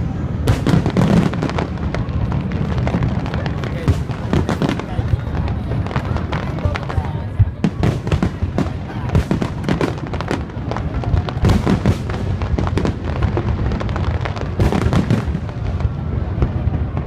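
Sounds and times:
fireworks bursting and crackling: 0:00.0 - 0:17.0.

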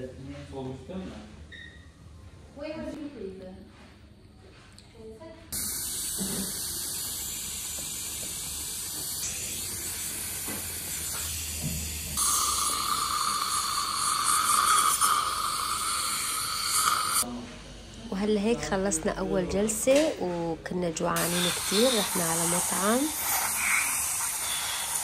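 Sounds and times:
saliva ejector sucking hiss: 0:21.2 - 0:25.0.

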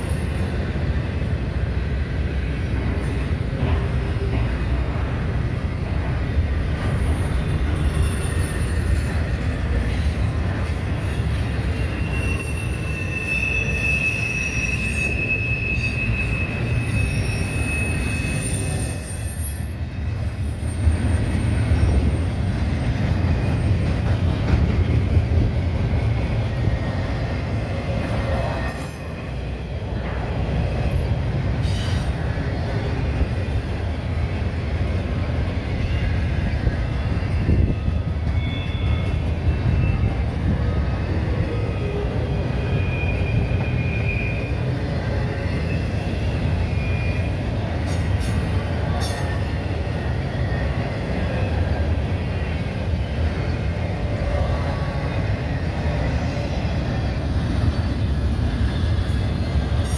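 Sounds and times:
steel wheels rumbling on rail: 0:00.0 - 0:59.9
high wheel squeal: 0:06.9 - 0:10.0, 0:10.9 - 0:22.4, 0:37.0 - 0:40.3, 0:41.5 - 0:48.5.

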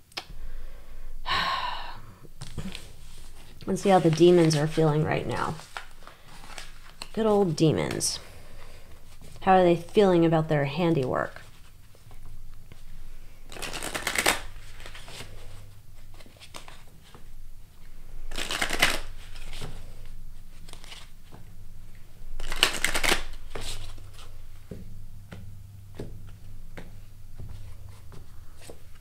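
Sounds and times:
cards being riffle-shuffled: 0:02.4 - 0:10.4, 0:11.3 - 0:17.3, 0:18.3 - 0:21.5, 0:22.4 - 0:25.4, 0:26.0 - 0:29.0
cards tapping and clicking: 0:13.5 - 0:15.2, 0:18.3 - 0:19.8, 0:22.4 - 0:29.0.

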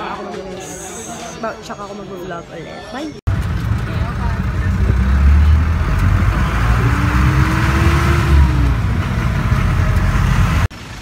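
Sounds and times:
vehicle engine and road noise: 0:03.3 - 0:11.0.

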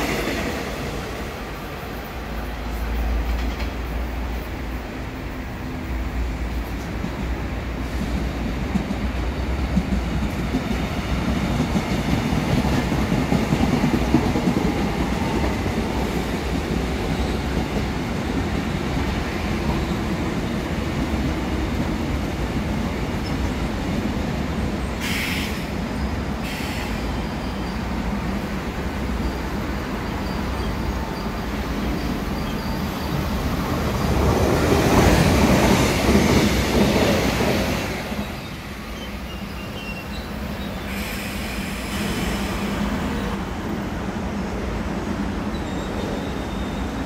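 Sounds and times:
train wheels rumbling on rails: 0:00.0 - 0:47.0
short hisses: 0:25.0 - 0:25.7, 0:26.4 - 0:27.1, 0:40.9 - 0:42.9.

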